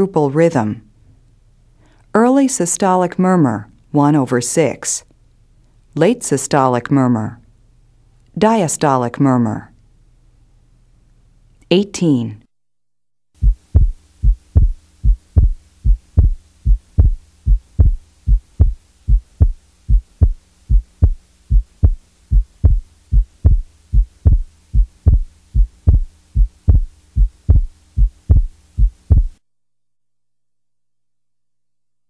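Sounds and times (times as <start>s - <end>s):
faint low hum: 0.0s - 12.5s, 13.4s - 29.4s
heartbeat thumps: 13.4s - 29.4s.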